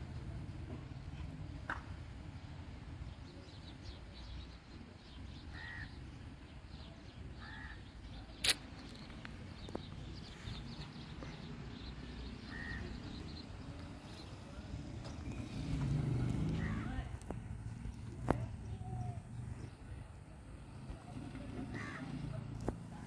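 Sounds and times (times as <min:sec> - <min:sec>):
crow cawing: 0:05.5 - 0:06.0, 0:07.4 - 0:07.8, 0:21.8 - 0:22.1.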